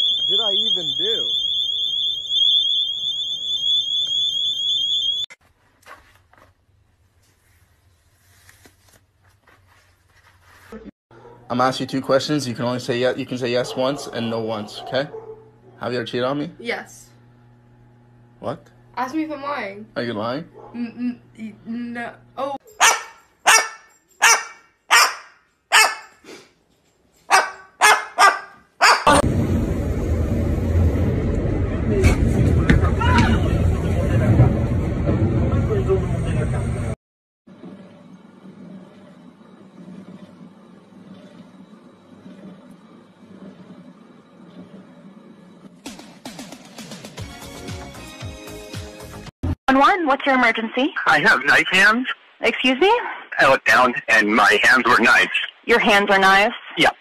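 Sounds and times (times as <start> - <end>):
shrill warbling alarm: 0.0 - 5.4
cockatoo barking like a dog: 13.6 - 15.8, 22.8 - 26.1, 27.3 - 29.2.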